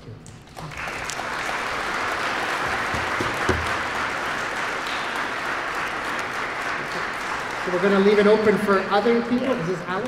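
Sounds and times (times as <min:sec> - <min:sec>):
audience applauding: 0:00.5 - 0:09.6
low knocks: 0:02.8 - 0:03.9.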